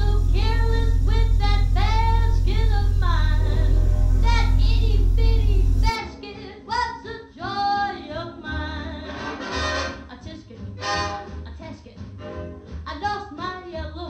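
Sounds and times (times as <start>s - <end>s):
deep drone: 0.0s - 6.0s
high singing voice: 0.0s - 8.6s.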